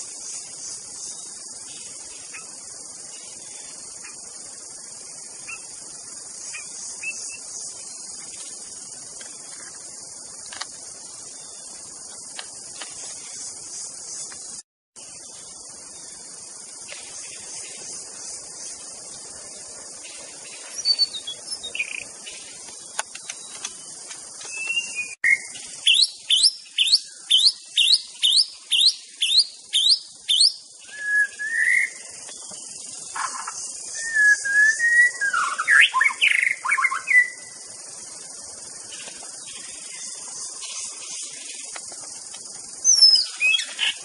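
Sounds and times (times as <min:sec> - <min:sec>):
steady high hiss: 0:00.0 - 0:44.0
bird singing whistles and warbles: 0:06.5 - 0:08.0, 0:20.5 - 0:22.6, 0:24.4 - 0:32.5, 0:33.1 - 0:37.6, 0:42.8 - 0:44.0.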